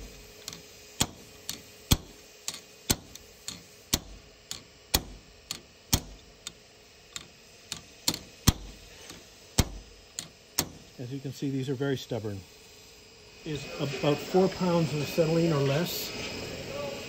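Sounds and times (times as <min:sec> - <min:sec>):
hammer striking metal punch: 0:00.4 - 0:06.5, 0:07.7 - 0:11.0.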